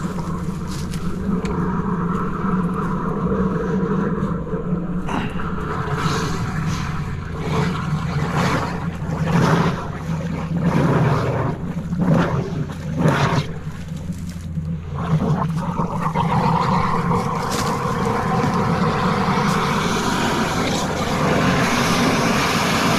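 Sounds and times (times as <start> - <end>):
drain jetter droning: 0.0 - 22.9
water rushing surges: 14.8 - 22.9.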